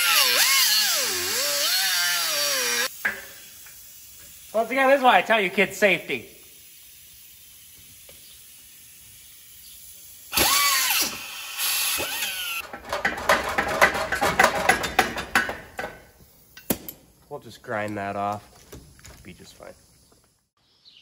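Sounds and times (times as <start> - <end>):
steel tubing clanking and scraping: 12.2 - 16.1
rapid rattling clanks: 12.6 - 16.1.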